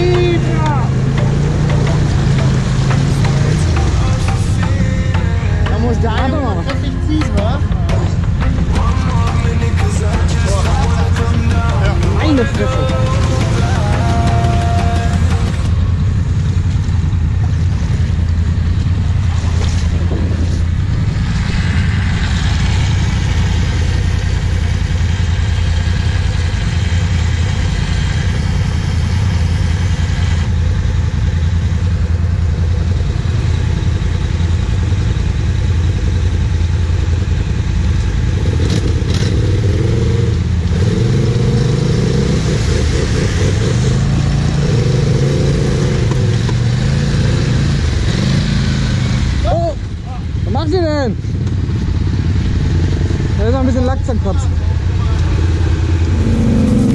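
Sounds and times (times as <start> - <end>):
quad engines idling: 0.0 - 56.9
engine revving up and down: 38.3 - 49.6, 54.4 - 56.9.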